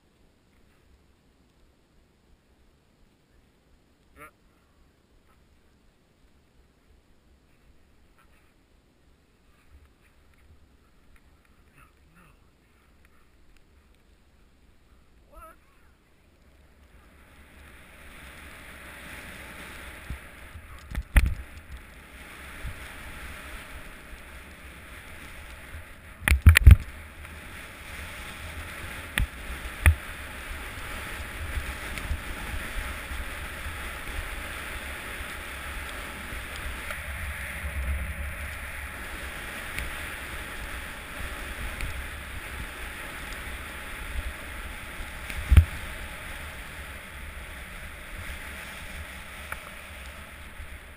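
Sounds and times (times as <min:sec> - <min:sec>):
wind rumble: 0:12.5 - 0:50.9
ski sliding over snow: 0:15.9 - 0:50.9.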